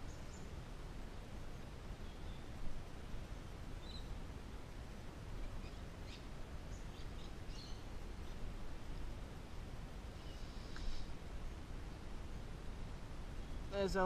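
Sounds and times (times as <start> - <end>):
low outdoor background hiss: 0.0 - 14.0
birds chirping: 2.0 - 4.2, 5.4 - 8.6.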